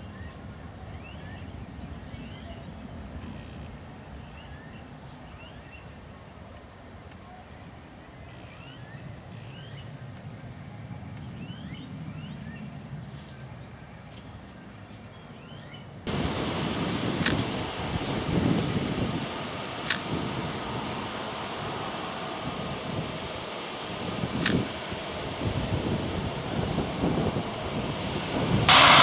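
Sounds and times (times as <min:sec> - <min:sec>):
distant jet engine rumble: 0:16.1 - 0:29.0
loud rushing noise: 0:16.1 - 0:29.0.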